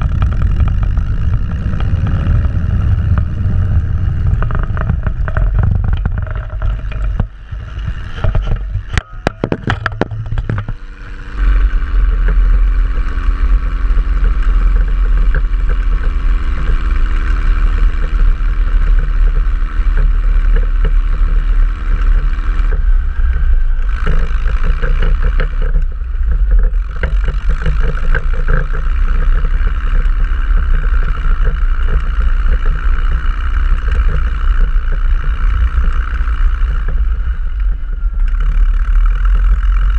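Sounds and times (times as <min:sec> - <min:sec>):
sharp knocks: 0:00.0 - 0:10.8
snowcat engine running: 0:00.0 - 0:39.9.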